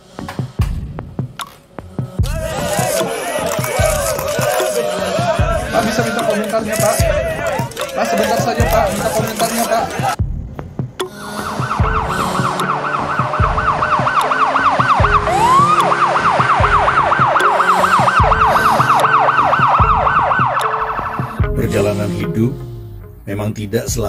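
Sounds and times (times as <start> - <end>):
low regular thumps: 0.1 - 3.0, 8.4 - 12.6, 13.2 - 14.2
police siren yelping: 11.3 - 21.9.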